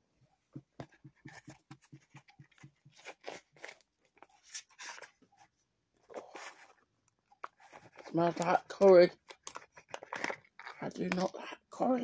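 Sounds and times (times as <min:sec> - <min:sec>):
pouch crinkling and rustling: 0:07.4 - 0:11.3.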